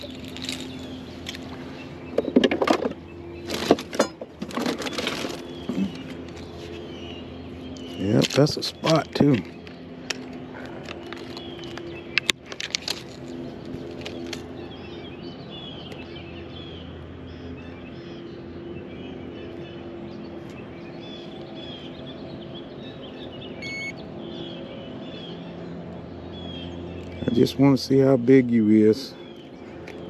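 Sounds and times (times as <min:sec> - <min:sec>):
songbirds chirping: 0:00.0 - 0:30.0
steady low hum: 0:00.0 - 0:30.0
electronic beep: 0:23.6 - 0:24.0.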